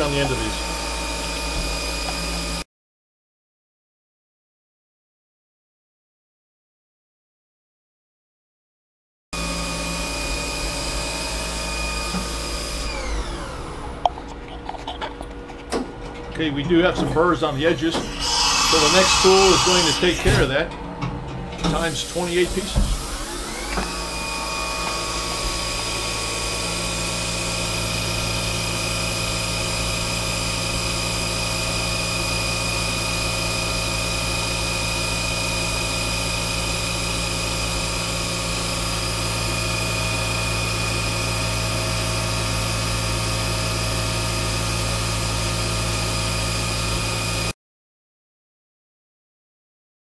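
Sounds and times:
mill spindle high whine: 0:00.0 - 0:02.6, 0:09.4 - 0:14.5, 0:16.2 - 0:47.5
low machine hum: 0:09.4 - 0:42.3.

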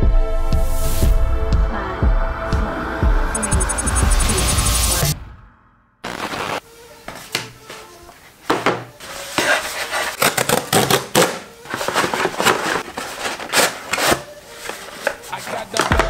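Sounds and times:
cardboard rustling and scraping: 0:08.5 - 0:10.8, 0:11.7 - 0:16.0.

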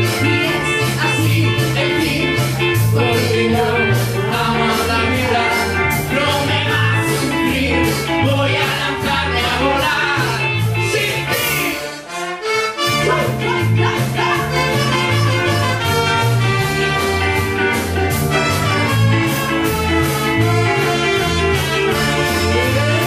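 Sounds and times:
drum kit: 0:00.0 - 0:11.8, 0:12.8 - 0:23.0
electric guitar: 0:00.0 - 0:11.8, 0:12.8 - 0:23.0
lead singer: 0:00.0 - 0:11.9, 0:13.3 - 0:15.9, 0:21.0 - 0:23.0
bass guitar: 0:00.0 - 0:23.0
button accordions: 0:11.2 - 0:23.0
horns: 0:11.3 - 0:23.0.

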